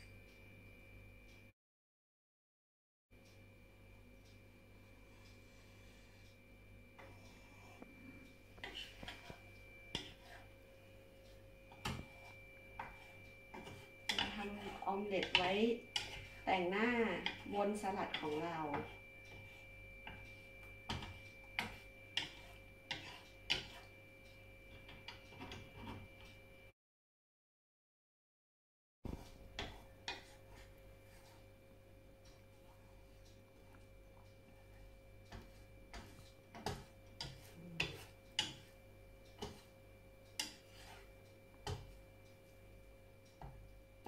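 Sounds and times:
wooden spatula tapping frying pan: 11.7s - 23.9s, 34.9s - 42.0s.

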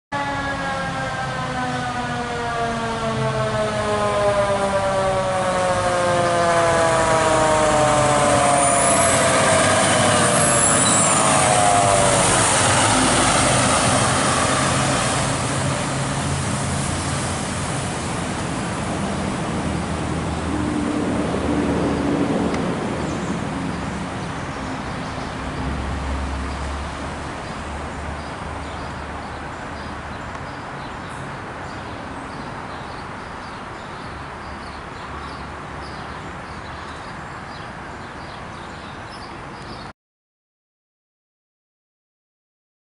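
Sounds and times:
fire engine siren wailing: 0.1s - 23.1s.

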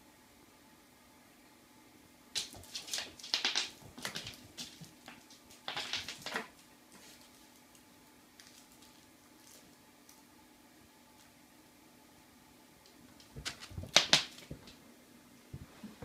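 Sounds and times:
candy skittering on wooden floor: 2.4s - 10.2s, 13.2s - 14.8s.

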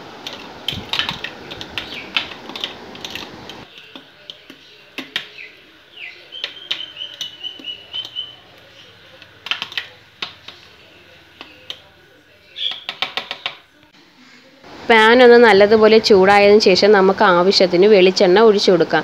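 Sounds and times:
fork whisking in glass bowl: 0.2s - 11.9s.

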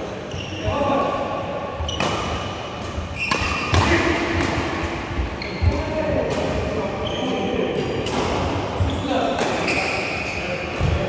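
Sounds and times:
shoes squeaking on court: 0.2s - 0.9s, 1.8s - 3.8s, 5.2s - 10.9s.

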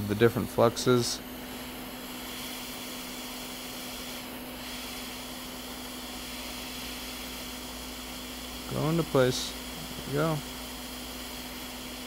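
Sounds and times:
hot air station airflow hiss: 0.0s - 12.0s.

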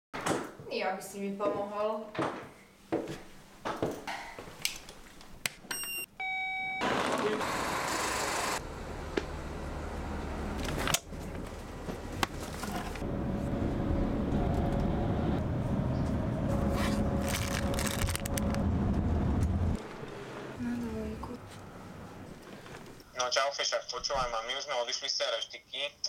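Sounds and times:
bus engine and road rumble: 8.4s - 23.0s
plastic bag crinkling: 17.2s - 18.6s.

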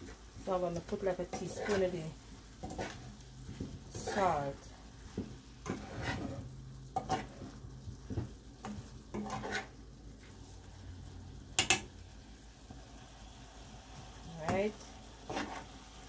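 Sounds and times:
metal spoon scraping a pan: 0.0s - 10.5s, 11.6s - 11.9s, 14.4s - 15.8s
faint frying sizzle: 0.0s - 16.0s.

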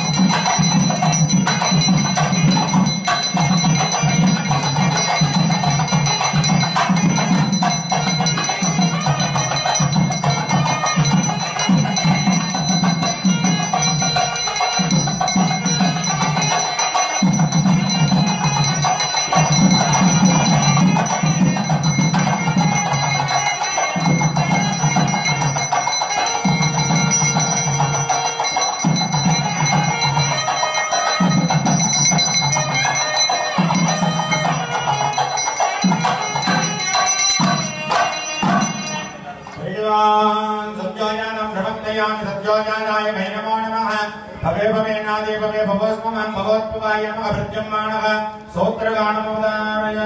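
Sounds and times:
temple bells ringing: 0.0s - 39.6s.

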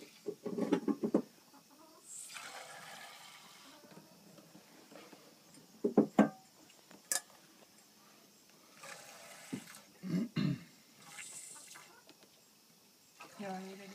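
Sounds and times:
knocks and thumps: 0.3s - 1.3s, 5.8s - 6.4s.

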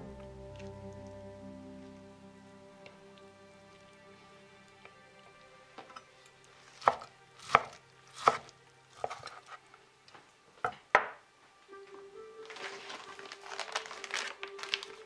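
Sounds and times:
knife slicing meat: 6.7s - 9.6s.

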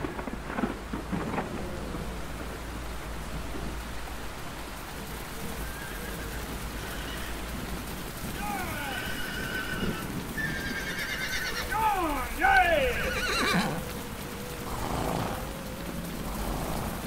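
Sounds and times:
thunder cracks: 0.0s - 2.8s, 11.5s - 14.0s
steady rain: 0.0s - 17.0s.

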